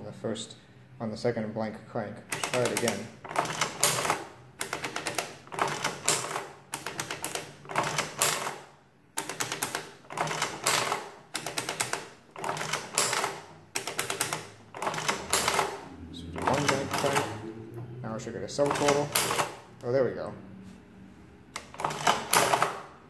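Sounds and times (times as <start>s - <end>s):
adding machine crank clicks: 2.3s - 8.6s, 9.2s - 15.8s, 16.4s - 17.4s, 18.6s - 19.6s, 21.6s - 22.9s
adding machine keys pressed: 2.3s - 15.8s, 16.4s - 17.4s, 18.6s - 19.8s, 21.5s - 23.0s.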